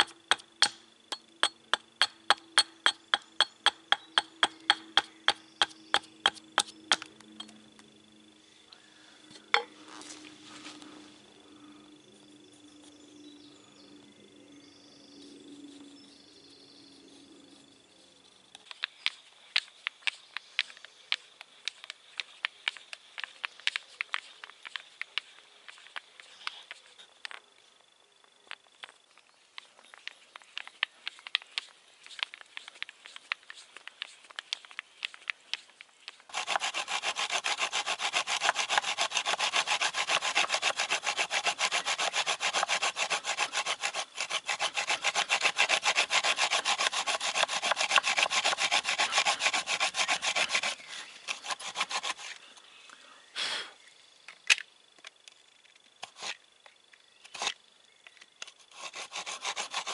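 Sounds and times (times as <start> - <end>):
hand saw cutting wood: 0.0 - 0.8, 1.7 - 7.1, 36.3 - 52.4, 58.6 - 59.9.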